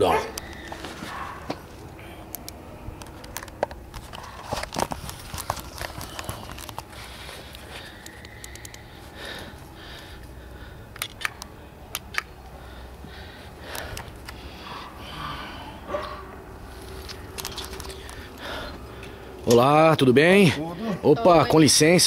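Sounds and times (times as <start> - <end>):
handheld camera rustling and knocking: 3.0 - 8.7.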